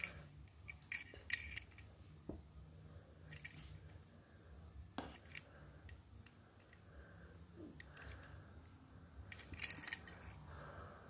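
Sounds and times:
toy car clicking and rubbing: 0:00.0 - 0:01.9, 0:03.3 - 0:03.7, 0:09.3 - 0:10.4.

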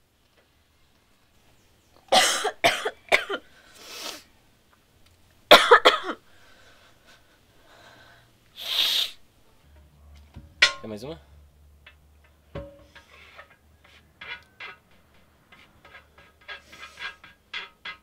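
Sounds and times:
person coughing loudly: 0:02.1 - 0:03.4, 0:05.5 - 0:06.2.

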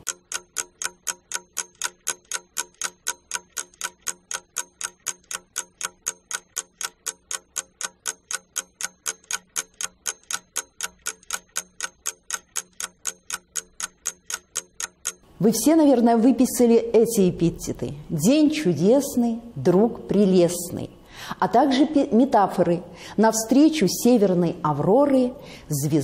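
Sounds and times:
clock ticking: 0:00.0 - 0:16.1.

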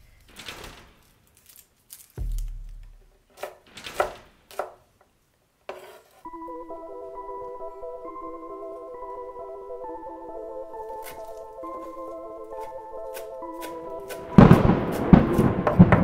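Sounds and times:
knife chopping garlic: 0:03.3 - 0:04.8, 0:11.0 - 0:15.7
knife scraping cutting board: 0:05.7 - 0:06.3
music: 0:06.3 - 0:16.0.

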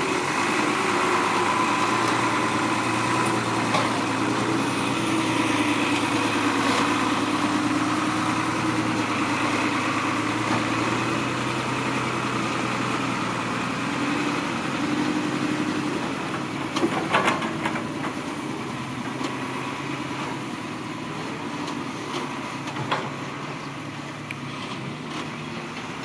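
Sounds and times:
diesel truck engine idling: 0:00.0 - 0:16.8.

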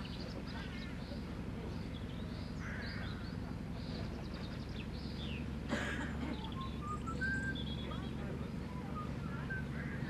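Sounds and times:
birds singing and chirping: 0:00.0 - 0:10.0
low engine hum: 0:00.0 - 0:10.0
whistled notes: 0:06.5 - 0:10.0.

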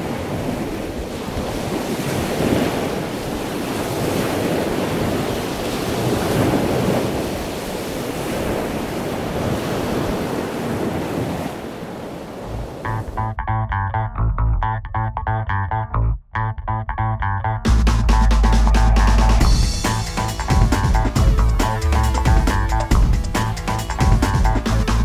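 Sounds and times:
surf breaking on shore: 0:00.0 - 0:13.2.

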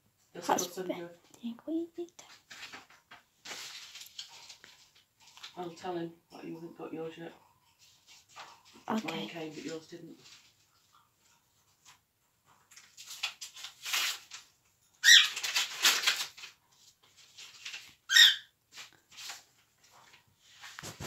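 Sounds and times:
paper envelope tearing: 0:12.8 - 0:14.5, 0:15.2 - 0:16.6.

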